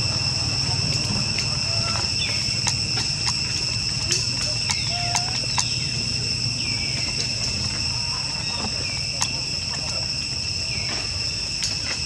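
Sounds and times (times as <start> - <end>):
insect chorus drone: 0.0 - 12.0
sharp clicks: 1.3 - 5.8.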